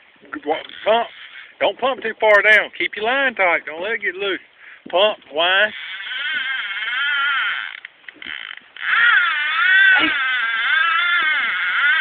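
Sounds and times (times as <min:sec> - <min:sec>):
fishing reel drag running: 0:00.6 - 0:01.5, 0:05.5 - 0:12.0.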